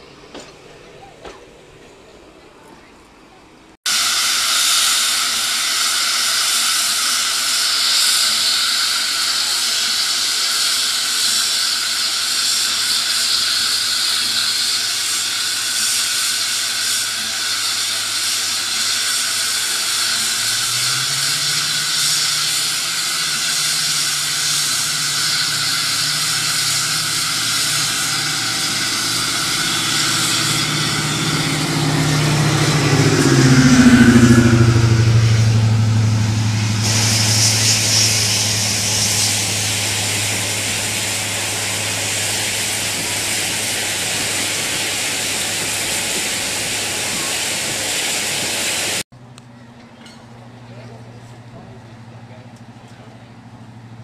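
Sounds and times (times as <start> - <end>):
steam hissing: 3.9 - 49.1
low engine drone: 19.9 - 54.0.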